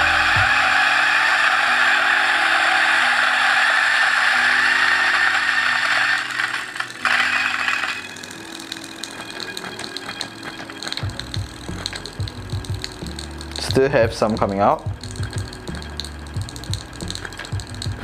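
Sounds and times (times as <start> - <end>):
coffee grinder grinding: 0.0 - 18.0
faint ticking of beans: 5.3 - 18.0.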